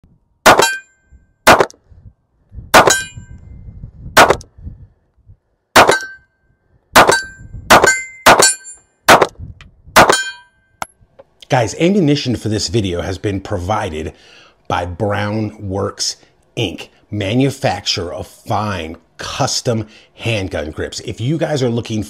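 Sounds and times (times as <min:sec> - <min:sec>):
handgun shots: 0:00.5 - 0:00.8, 0:01.5 - 0:01.8, 0:02.8 - 0:03.1, 0:04.2 - 0:04.4, 0:05.8 - 0:06.2, 0:07.0 - 0:09.4, 0:10.0 - 0:10.3
steel targets ringing: 0:00.5 - 0:01.0, 0:02.8 - 0:03.3, 0:05.8 - 0:06.3, 0:07.0 - 0:08.9, 0:10.0 - 0:10.6.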